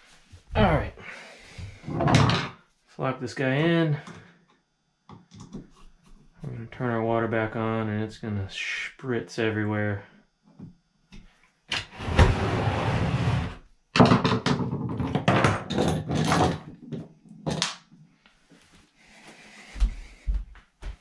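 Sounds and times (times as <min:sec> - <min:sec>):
plastic bucket scraping in bathtub: 0:11.8 - 0:13.6
soft footsteps: 0:18.3 - 0:21.0.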